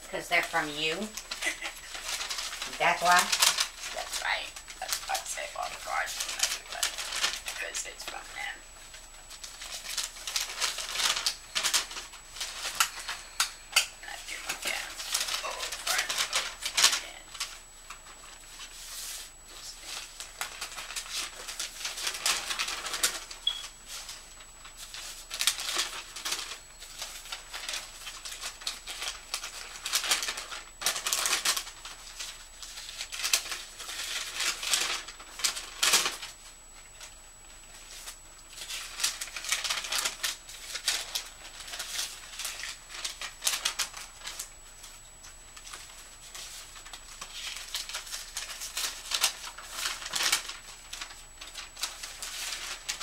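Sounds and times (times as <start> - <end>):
paper rustling and shuffling: 0.0 - 53.0.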